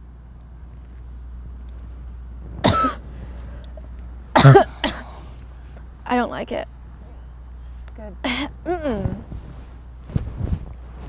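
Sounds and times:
woman coughing: 0:02.6 - 0:03.0, 0:04.4 - 0:05.2, 0:08.2 - 0:09.0.

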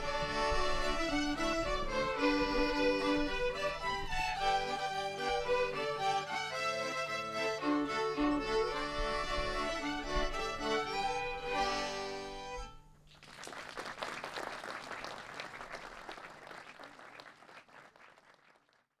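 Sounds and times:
fiddle ensemble playing: 0:00.0 - 0:12.8
audience applause: 0:13.1 - 0:18.9.

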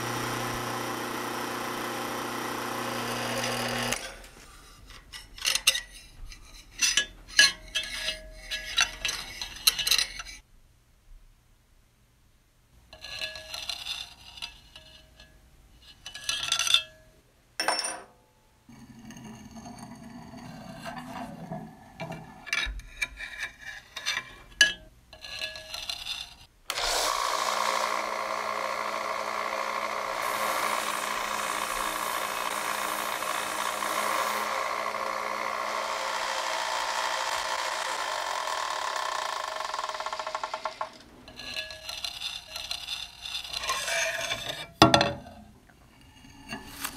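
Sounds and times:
belt sander whining: 0:00.0 - 0:04.3, 0:26.7 - 0:44.1
steel chisel clinking on metal table: 0:17.6 - 0:18.1.

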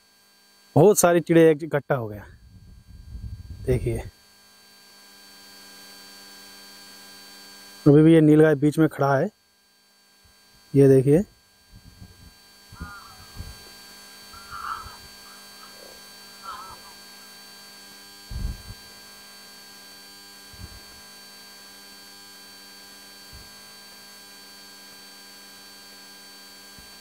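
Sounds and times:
steady hum of faint tones: 0:02.0 - 0:04.1, 0:10.0 - 0:19.0
distant bird calls: 0:11.8 - 0:17.1.

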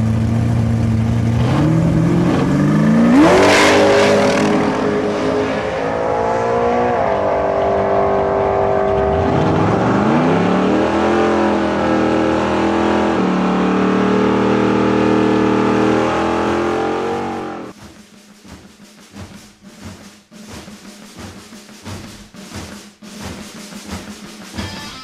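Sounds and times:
drag car engine at full throttle: 0:00.0 - 0:17.8.

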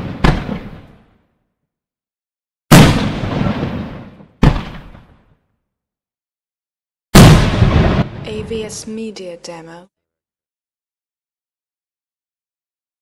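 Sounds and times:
firework bangs: 0:00.0 - 0:01.1, 0:02.7 - 0:05.2, 0:07.2 - 0:08.8.

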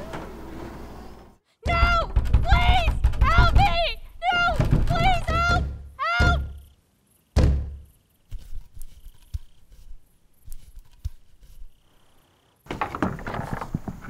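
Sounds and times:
rustling: 0:07.7 - 0:14.0
wooden tools clicking and knocking: 0:12.6 - 0:14.0.

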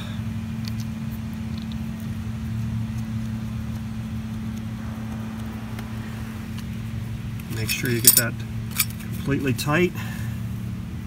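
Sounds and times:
machine humming: 0:02.6 - 0:07.6.

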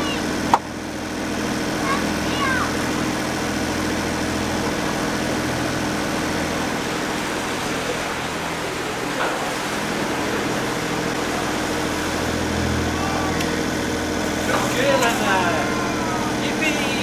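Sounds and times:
boat engine humming: 0:00.0 - 0:17.0.

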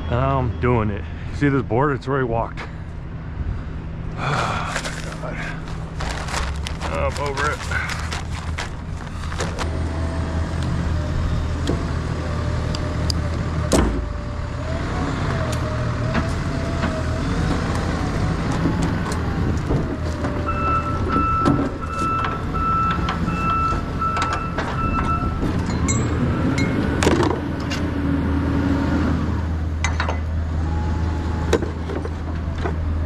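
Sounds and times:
forklift engine whining: 0:05.2 - 0:33.0
reverse alarm beeping: 0:20.5 - 0:26.8.

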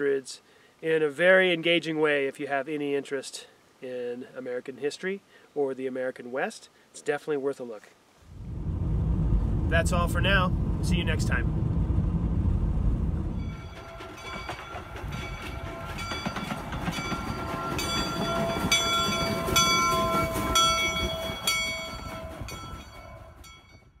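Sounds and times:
low rumble: 0:08.2 - 0:16.2
steam locomotive bell ringing: 0:13.4 - 0:24.0.

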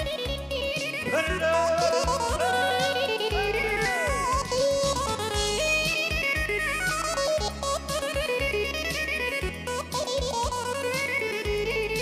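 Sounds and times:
woodwind folk melody: 0:00.0 - 0:12.0
pulsing bass line and beat: 0:01.1 - 0:08.8.

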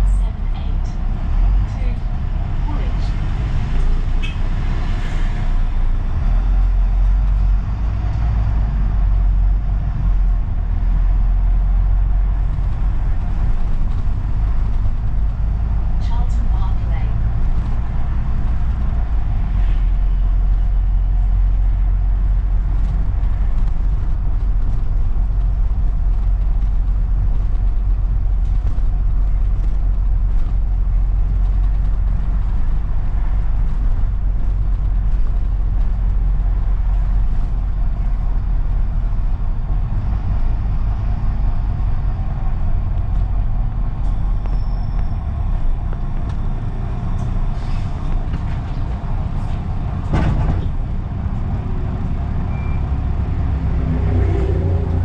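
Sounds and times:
bus engine and road rumble: 0:00.0 - 0:55.0.

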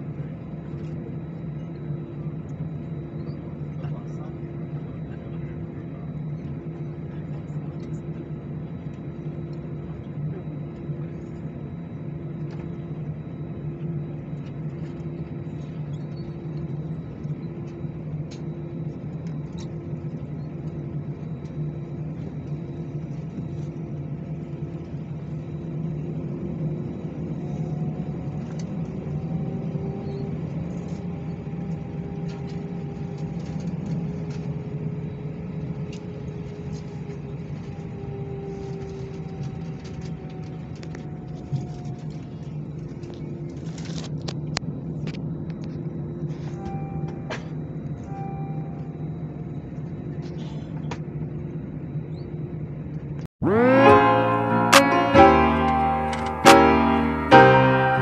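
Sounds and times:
jet engine cabin drone: 0:00.0 - 0:58.0
engine tones rising in pitch: 0:53.4 - 0:58.0
pulsing note: 0:53.4 - 0:58.0.

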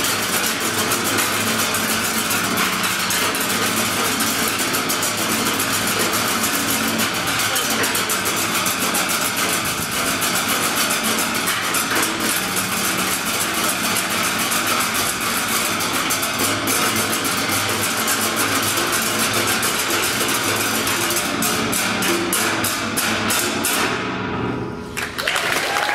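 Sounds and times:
drumsticks striking metal barrels: 0:00.0 - 0:24.7.

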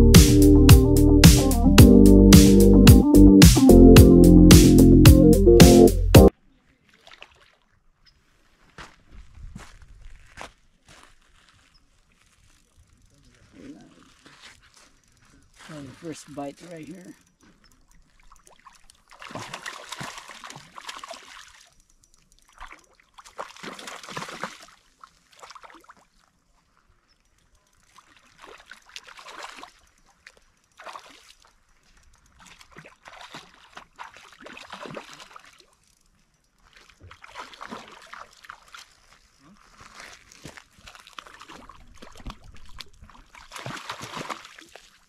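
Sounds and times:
fish splashing and thrashing: 0:14.0 - 0:45.0.

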